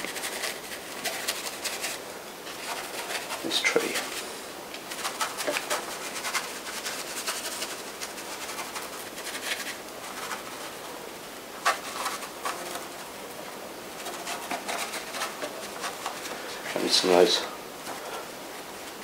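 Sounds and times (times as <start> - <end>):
paintbrush scrubbing on canvas: 0.0 - 10.8, 14.0 - 17.4
rain hissing: 0.0 - 14.1, 14.8 - 19.0.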